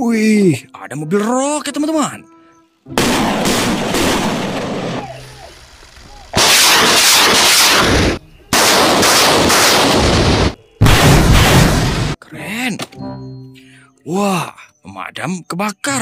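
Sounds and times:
rockets launching with rushing blasts: 3.0 - 12.2.

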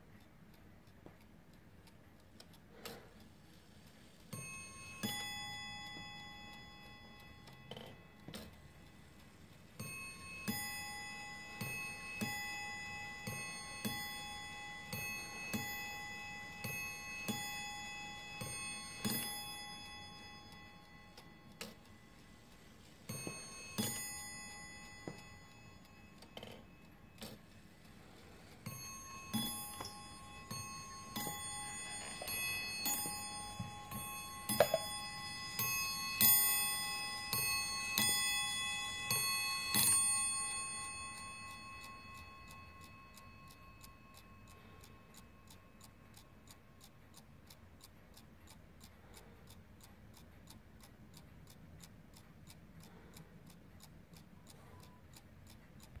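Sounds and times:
clock ticking: 0.0 - 56.0
clock striking on bells: 4.3 - 46.0.

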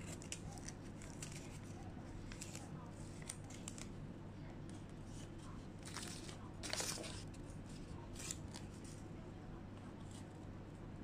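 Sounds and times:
paper rustling and crinkling: 0.0 - 4.0, 4.7 - 9.0.

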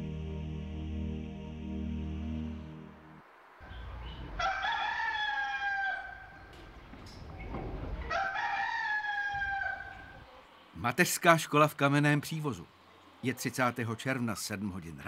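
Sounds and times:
background music: 0.0 - 3.2
rooster crowing: 3.6 - 6.9, 7.9 - 10.3.

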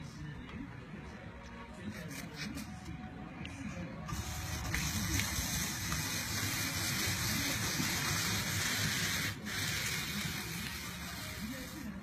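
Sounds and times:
apple peeling machine scraping: 4.1 - 12.0.

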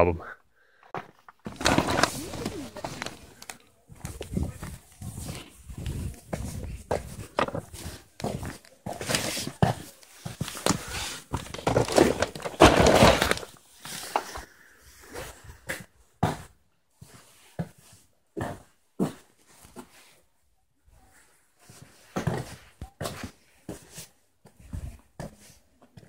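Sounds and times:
cardboard rustling: 1.2 - 13.6.

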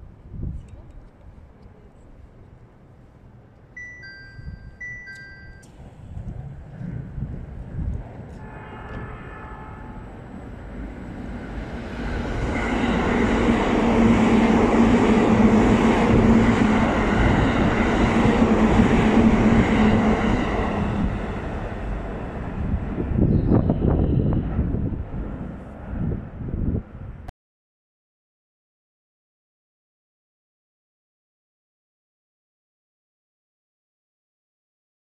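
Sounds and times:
express train passing at speed: 2.7 - 27.3.

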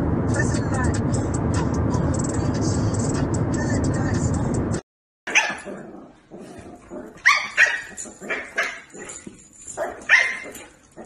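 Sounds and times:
puppy yapping: 5.3 - 5.7, 7.2 - 9.2, 9.8 - 10.8.

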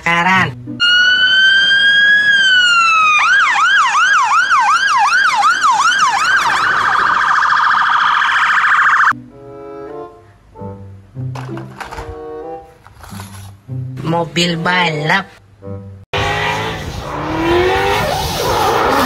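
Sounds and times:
fire engine siren: 0.8 - 9.2.

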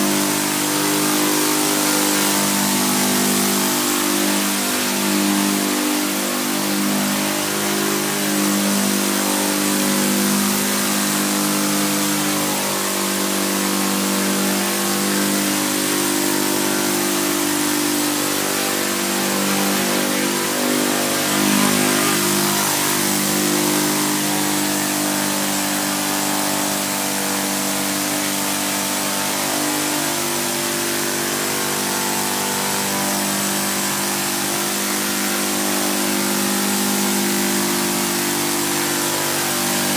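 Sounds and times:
small gasoline engine running: 0.0 - 39.9
propellers whirring: 14.8 - 26.3.

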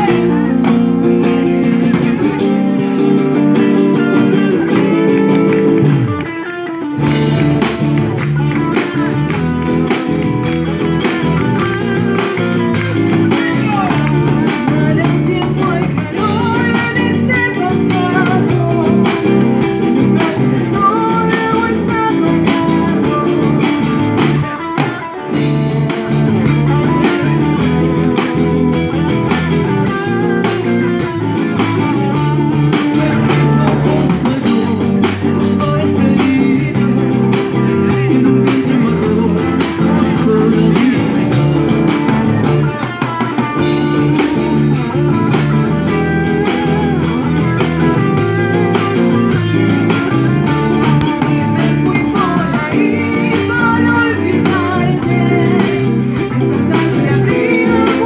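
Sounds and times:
drum kit: 0.0 - 58.0
electric guitar: 0.0 - 58.0
man singing into microphone: 13.0 - 19.4, 32.6 - 41.8, 50.6 - 58.0.

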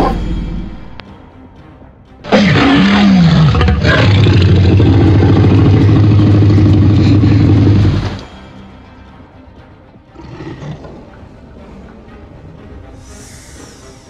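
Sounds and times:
dinosaur roar: 2.3 - 8.2, 10.2 - 11.1.

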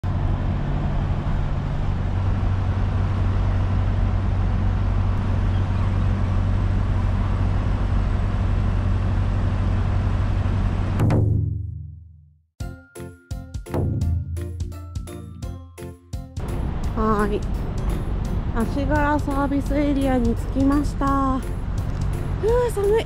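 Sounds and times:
traffic noise: 0.0 - 11.0, 16.4 - 23.0
vehicle engine idling: 0.1 - 10.9, 16.4 - 23.0.

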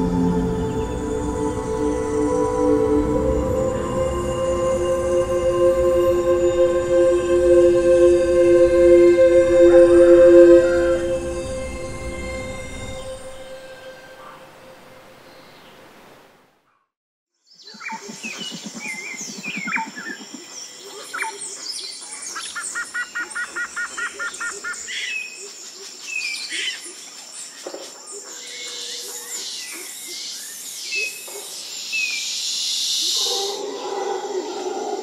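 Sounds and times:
steady high-pitched drone: 0.0 - 15.1
birds chirping and calling: 17.6 - 27.0.

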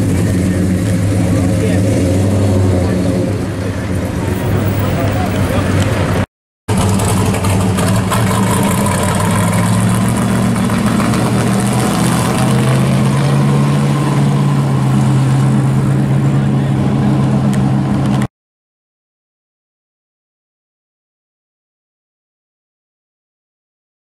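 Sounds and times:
car engine driving off: 0.0 - 18.3.

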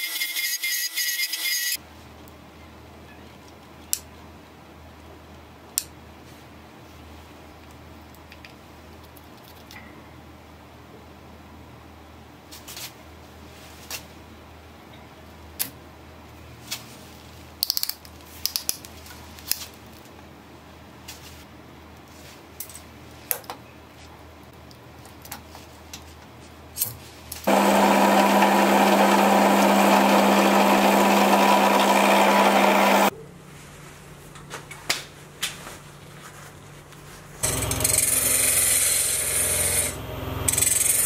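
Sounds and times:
drill press boring: 27.5 - 33.1, 37.5 - 41.0.

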